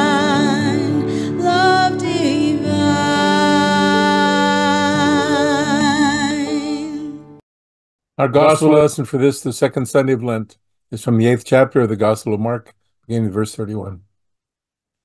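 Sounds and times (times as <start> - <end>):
woman singing worship song: 0.0 - 7.3.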